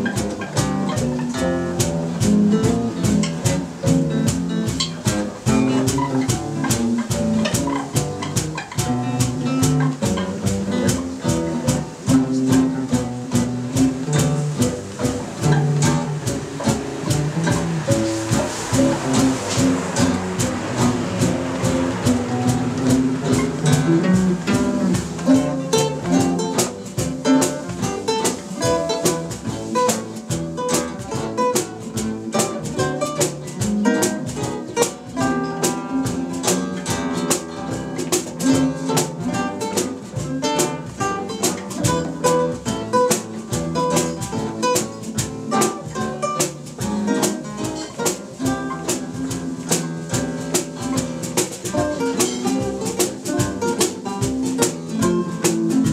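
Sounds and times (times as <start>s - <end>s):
electric bass line: 0.0s - 27.9s
acoustic guitars strumming chords: 0.0s - 55.9s
picked guitar notes: 0.0s - 55.9s.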